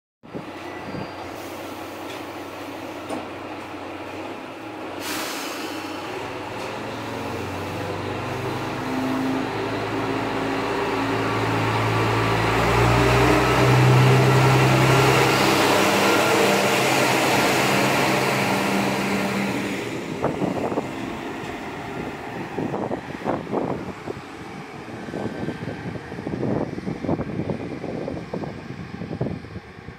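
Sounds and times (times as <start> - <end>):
diesel railcar engine under load: 0.3 - 29.9
brief hiss: 5.0 - 6.0.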